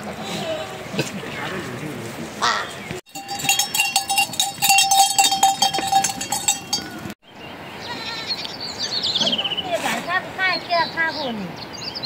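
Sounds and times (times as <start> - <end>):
metal bells jangling: 3.1 - 7.1.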